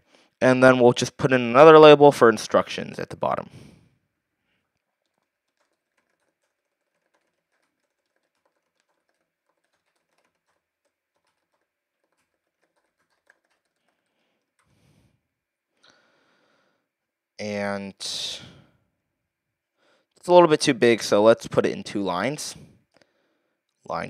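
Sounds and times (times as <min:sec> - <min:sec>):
short breath: 0:03.5 - 0:04.7, 0:15.8 - 0:16.9, 0:22.6 - 0:23.6
keyboard typing: 0:04.7 - 0:14.8.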